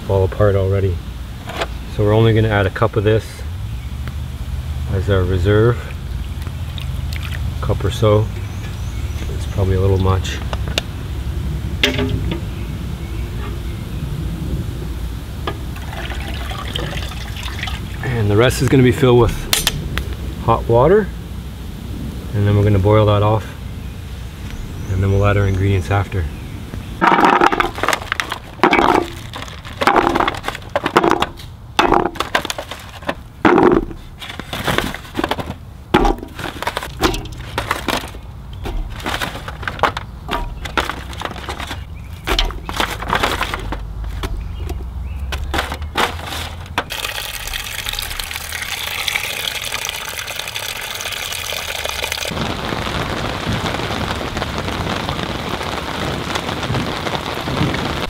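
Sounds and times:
vegetables clattering into metal pot: 11.8 - 12.5, 27.0 - 48.2.

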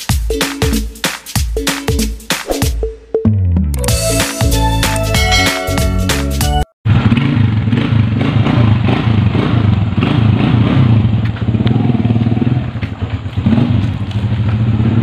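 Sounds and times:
small motorcycle engine running: 6.9 - 15.0.

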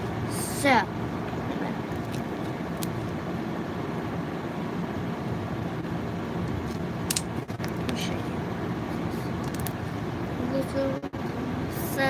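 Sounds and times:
air conditioner running: 0.0 - 12.0.

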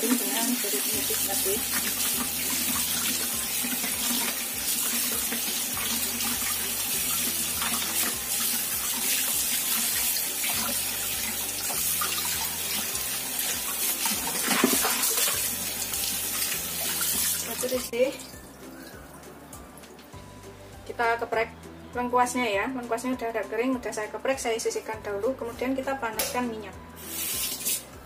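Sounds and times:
water splashing into bowl: 0.0 - 18.4
tap water running: 0.0 - 19.2, 27.0 - 27.9.

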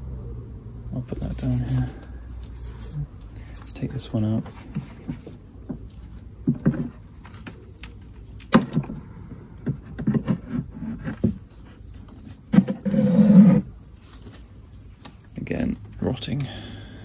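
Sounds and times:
wood creaking: 4.4 - 15.1.

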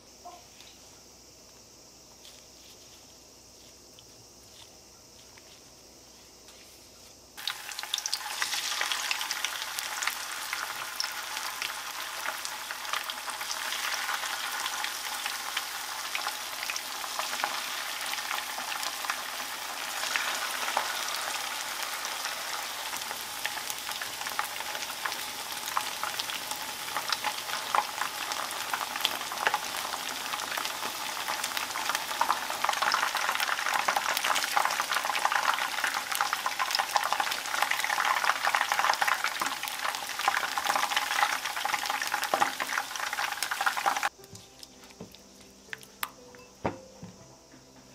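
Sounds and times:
oil sizzling and crackling: 7.4 - 46.1.

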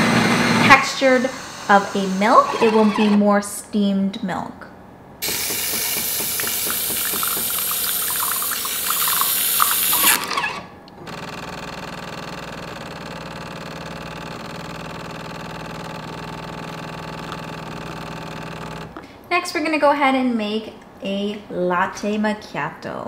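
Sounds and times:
espresso machine humming: 5.2 - 10.5, 11.1 - 18.9
milk frother steaming milk: 5.2 - 10.5.

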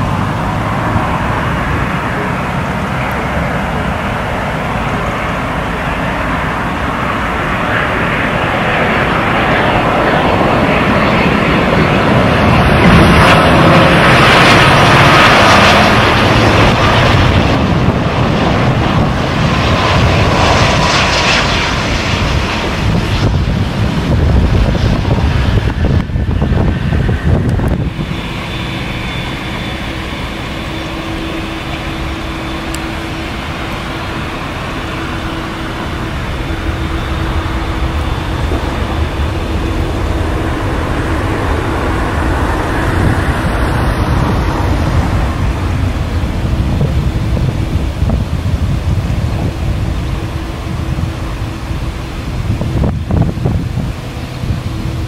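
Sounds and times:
jet airliner engines: 0.0 - 55.0
faint steady whine: 27.4 - 55.0.

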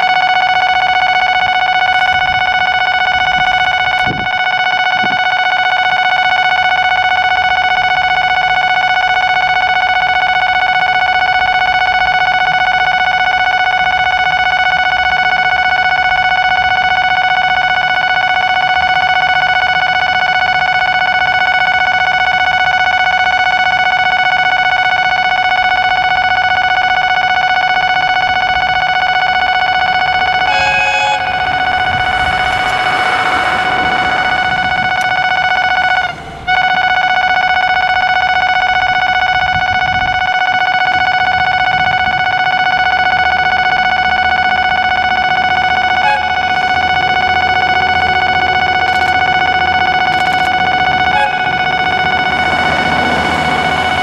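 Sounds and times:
railway crossing alarm tone: 0.0 - 54.0
burst of rushing noise: 30.6 - 36.5.

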